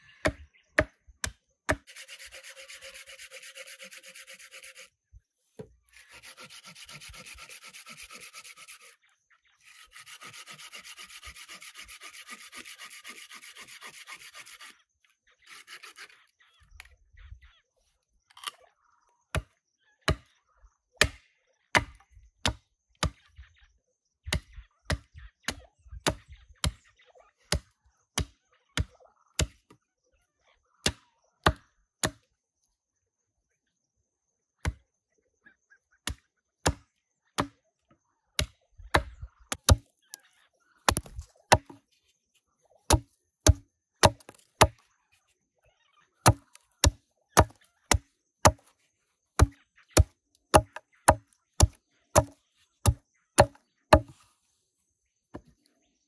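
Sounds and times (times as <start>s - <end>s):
hatchet chopping branch: 21.8s - 23.2s, 30.9s - 32.2s, 36.1s - 36.8s, 38.4s - 39.9s, 40.9s - 41.8s, 42.9s - 44.8s, 46.3s - 48.6s, 49.4s - 54.1s.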